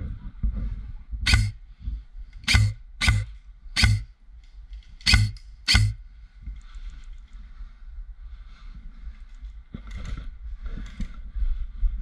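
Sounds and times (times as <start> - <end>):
airsoft rifle shots: 1.3 - 1.6, 2.4 - 4.1, 5.0 - 6.0.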